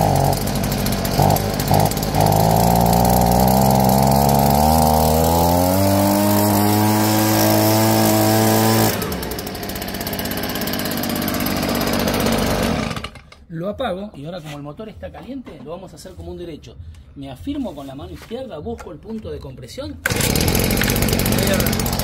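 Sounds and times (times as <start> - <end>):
leaf blower engine idling: 0.0 - 13.4, 20.0 - 22.0.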